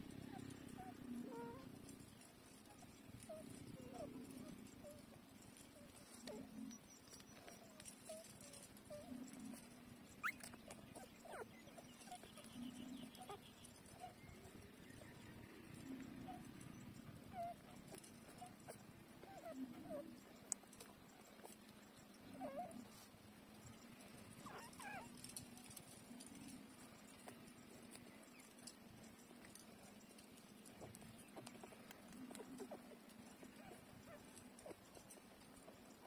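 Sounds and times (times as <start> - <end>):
puppies squeaking and whimpering: 0.2 - 15.1, 15.8 - 20.1, 22.4 - 22.8, 24.4 - 26.6, 30.7 - 36.0
puppies squealing: 10.2 - 12.6, 24.4 - 25.4.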